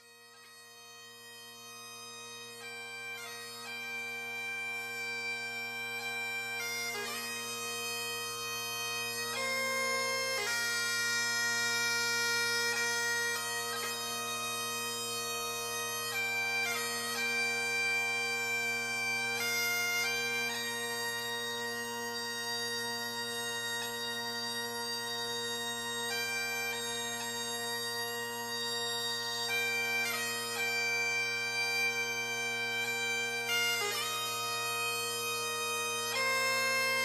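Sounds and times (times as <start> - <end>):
bagpipe music: 0.0 - 37.0.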